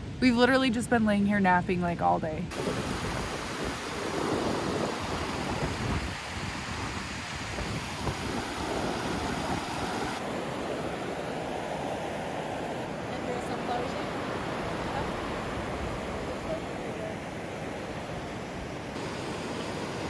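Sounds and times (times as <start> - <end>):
wind buffeting microphone: 1.5 - 20.0
river rushing over a weir: 2.5 - 20.0.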